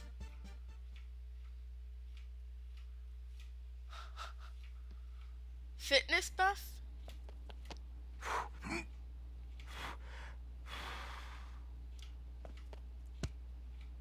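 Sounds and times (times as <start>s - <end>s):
low electrical hum: 0.0s - 14.0s
person breathing: 3.8s - 5.4s, 8.2s - 8.8s, 9.6s - 11.7s
click: 12.0s - 13.9s.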